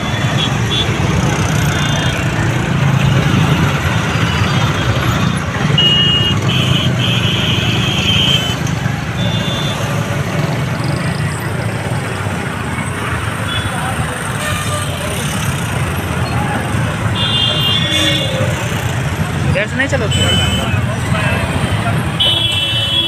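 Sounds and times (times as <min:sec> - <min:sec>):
vehicle horns honking: 0:00.0 - 0:02.3, 0:04.4 - 0:10.2, 0:13.4 - 0:15.3, 0:17.0 - 0:18.6, 0:20.0 - 0:23.0
motorcycle engines rumbling: 0:00.0 - 0:23.0.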